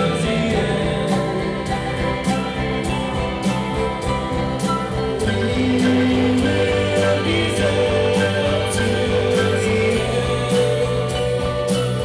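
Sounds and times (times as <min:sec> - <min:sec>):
man singing: 0:00.0 - 0:02.7, 0:05.2 - 0:11.8
live band playing: 0:00.0 - 0:12.0.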